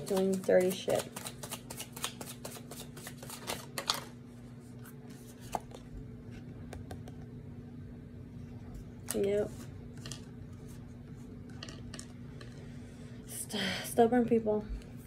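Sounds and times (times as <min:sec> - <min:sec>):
cards being shuffled: 0:00.0 - 0:04.2, 0:04.8 - 0:07.1.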